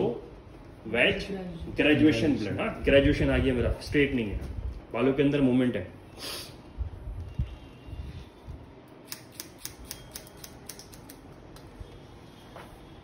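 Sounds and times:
scissors snipping hair: 0:09.0 - 0:11.8.

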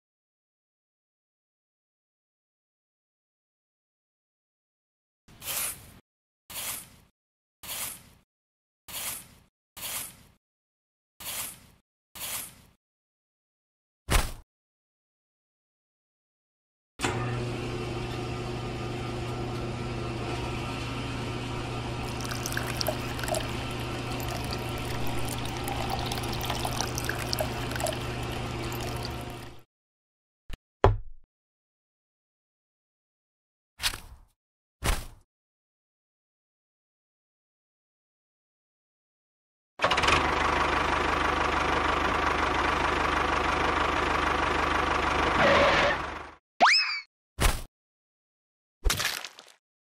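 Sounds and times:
water pump motor hum: 0:20.9 - 0:29.6
water pouring: 0:22.0 - 0:29.6
water splashing and dripping: 0:22.0 - 0:29.6.

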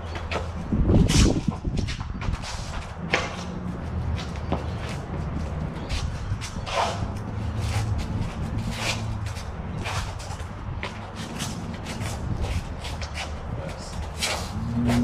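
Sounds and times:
footwork scuffing on ground: 0:00.0 - 0:15.0
practice blades swishing: 0:05.9 - 0:10.5.

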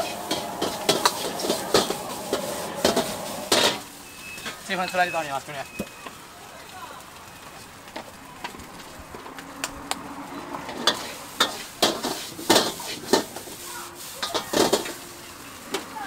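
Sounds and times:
metal ladle scraping a wok: 0:00.0 - 0:04.6, 0:10.8 - 0:15.1
food sizzling: 0:00.0 - 0:09.4, 0:10.1 - 0:16.0.

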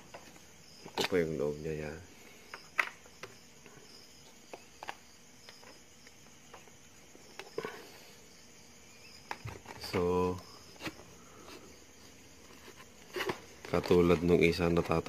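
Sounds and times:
crickets chirping: 0:00.0 - 0:15.0
clicks and rustles of handling: 0:00.1 - 0:01.2, 0:12.4 - 0:15.0.

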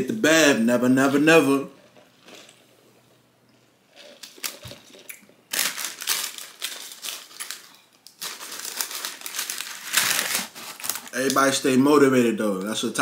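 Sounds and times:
paper packaging crumpling: 0:04.0 - 0:11.6.

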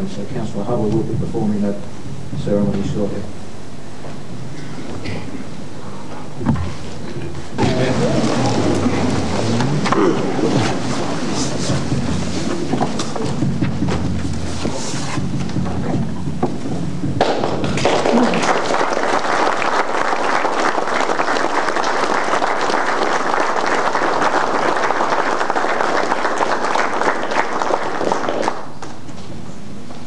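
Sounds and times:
low steady hum: 0:00.0 - 0:30.0
crowd applauding: 0:07.6 - 0:12.0, 0:17.2 - 0:29.0.

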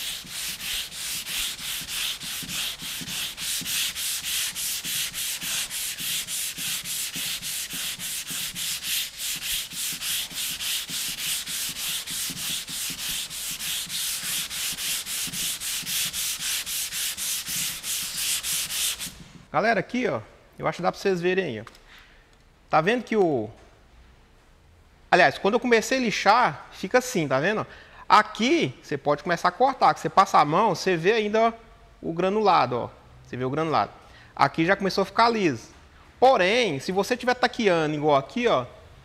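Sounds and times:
sandpaper rubbing: 0:00.0 - 0:19.4.

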